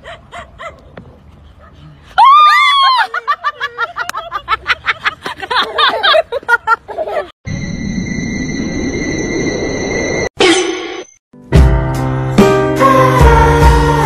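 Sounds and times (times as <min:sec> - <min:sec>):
loud high cry: 0:02.2 - 0:03.2.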